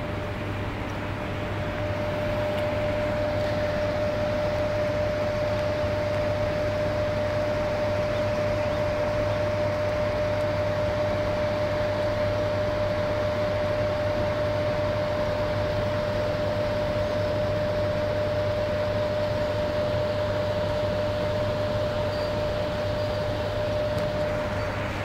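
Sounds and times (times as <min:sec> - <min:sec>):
high-pitched hum: 0:00.0 - 0:25.0.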